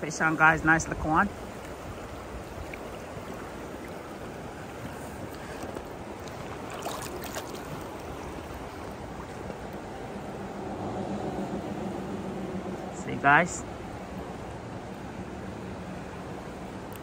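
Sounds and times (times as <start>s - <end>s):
river water rushing: 0.0s - 17.0s
fish splashing at surface: 6.3s - 8.2s.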